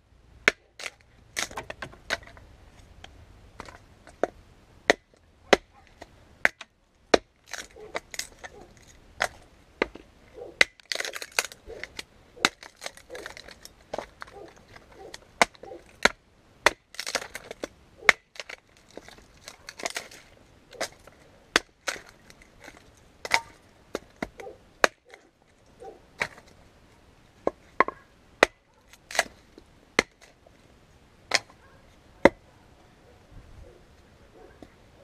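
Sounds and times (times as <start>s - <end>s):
hatchet splitting kindling: 0.5s - 2.4s, 4.9s - 10.0s, 10.6s - 25.3s, 27.4s - 30.4s, 31.3s - 31.6s.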